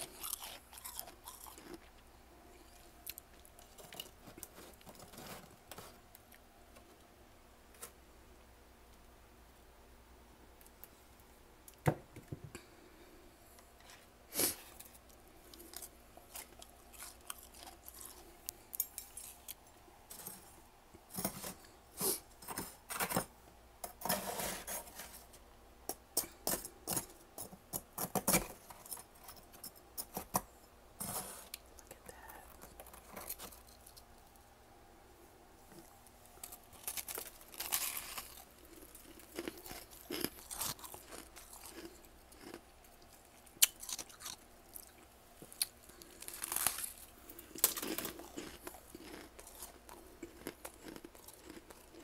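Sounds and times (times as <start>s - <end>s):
frost crunching and crackling: 0.0s - 2.0s, 2.7s - 6.4s, 14.3s - 19.7s, 35.7s - 52.0s.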